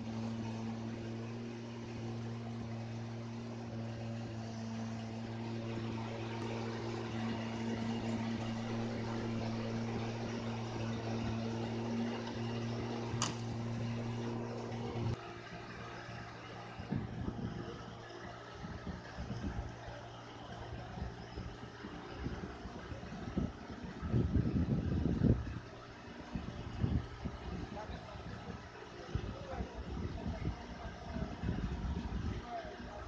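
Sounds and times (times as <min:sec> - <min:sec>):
motor humming: 0:00.0 - 0:33.0.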